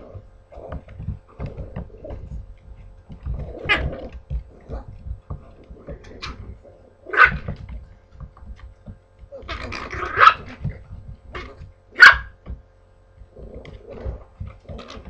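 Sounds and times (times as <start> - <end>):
paws scuffling on floor: 0.0 - 15.0
puppies barking: 3.3 - 5.3, 6.1 - 7.7, 9.4 - 12.5.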